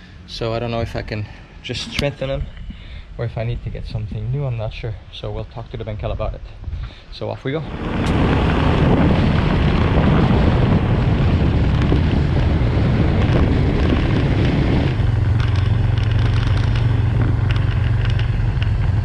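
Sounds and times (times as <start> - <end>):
wind noise on microphone: 0.0 - 19.0
motorcycle engine droning: 7.6 - 19.0.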